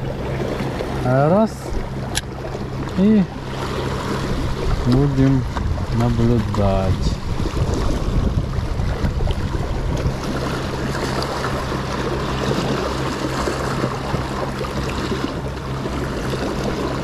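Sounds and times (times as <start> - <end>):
sea water washing against rocks: 0.0 - 17.0
steady low hum: 0.0 - 17.0.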